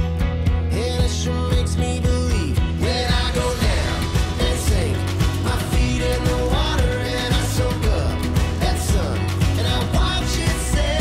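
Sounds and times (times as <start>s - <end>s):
country song with steady beat: 0.0s - 11.0s.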